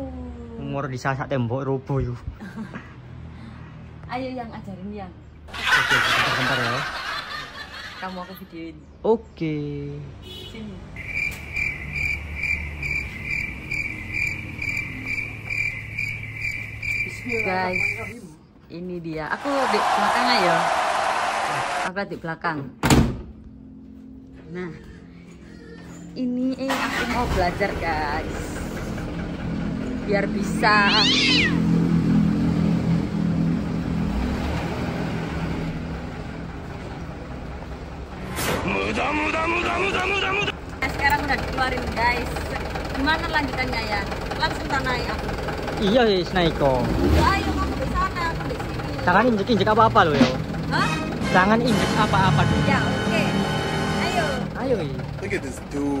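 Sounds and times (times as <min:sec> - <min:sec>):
truck diesel engine running: 0:11.0 - 0:18.1, 0:26.7 - 0:34.2, 0:34.8 - 0:56.0
electronic warning buzzer beeping: 0:11.0 - 0:18.2.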